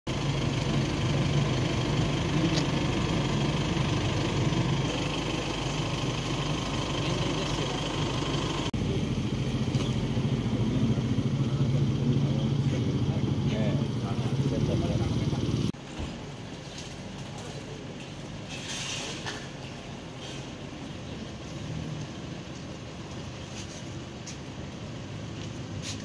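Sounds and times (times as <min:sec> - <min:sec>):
engine idling: 0:00.1 - 0:18.5.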